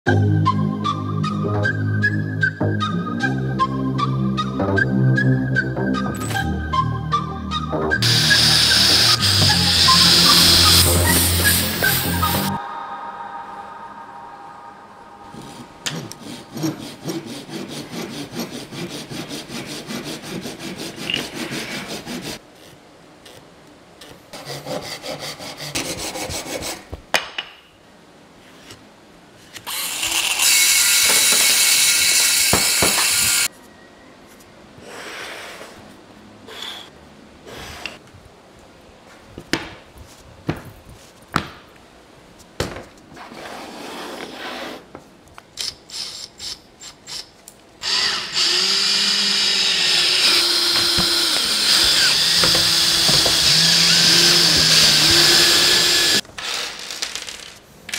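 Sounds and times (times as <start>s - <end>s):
saw cutting wood: 7.9s - 12.6s, 15.3s - 22.4s, 24.4s - 26.8s, 29.6s - 33.5s, 45.9s - 56.8s
loud steady hiss: 8.0s - 17.7s, 29.6s - 33.5s.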